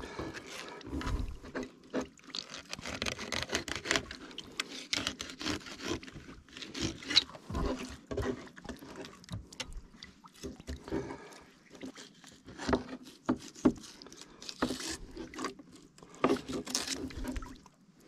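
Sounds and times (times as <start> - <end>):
wet handling noises: 0.0 - 17.8
knife scraping on board: 12.6 - 15.5.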